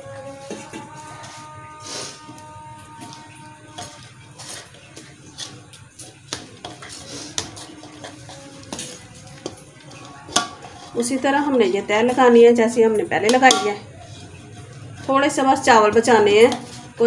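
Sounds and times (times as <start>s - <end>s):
soft scraping: 13.8s - 15.6s.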